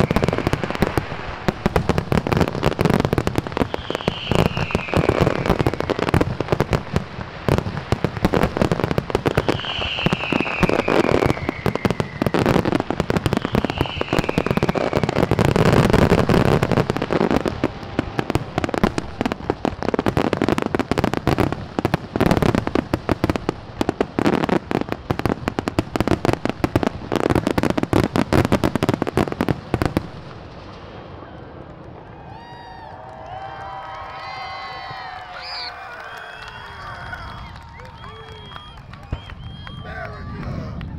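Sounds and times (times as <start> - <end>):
fireworks falling whistles: 0.0 - 21.5, 34.0 - 40.9
fireworks bangs and crackling: 0.0 - 40.9.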